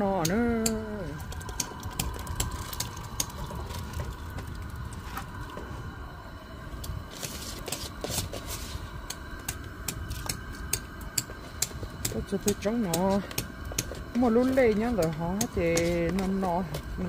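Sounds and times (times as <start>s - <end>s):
low rumble: 0.4s - 8.0s.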